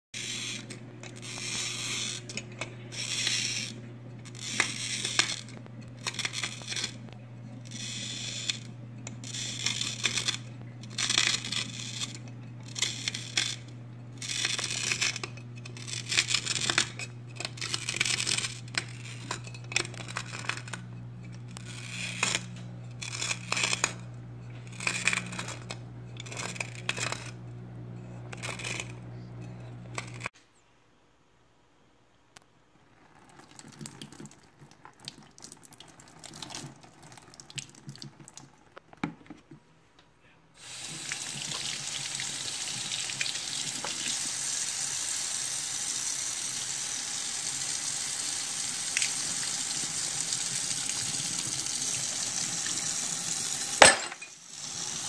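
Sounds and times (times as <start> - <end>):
cutting wheel scratching glass: 0.2 - 30.3
steady low hum: 0.2 - 30.3.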